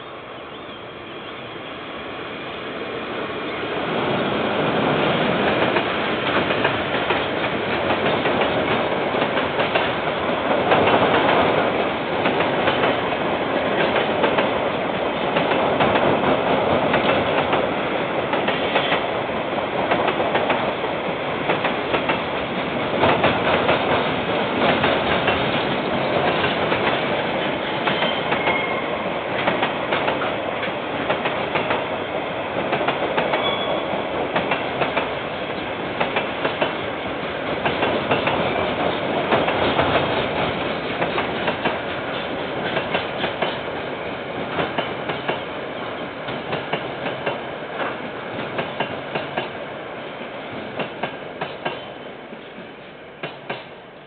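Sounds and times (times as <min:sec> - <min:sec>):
train wheels clattering: 0:04.7 - 0:20.8, 0:21.4 - 0:32.0, 0:32.6 - 0:36.8, 0:37.4 - 0:43.7
faint high squeals: 0:27.9 - 0:29.0, 0:33.4 - 0:33.9.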